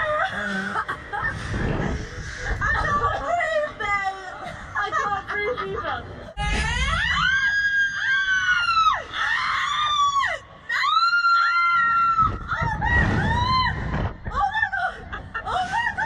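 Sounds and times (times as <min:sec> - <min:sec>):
low wind rumble: 0:00.0 - 0:16.0
women screaming: 0:06.4 - 0:16.0.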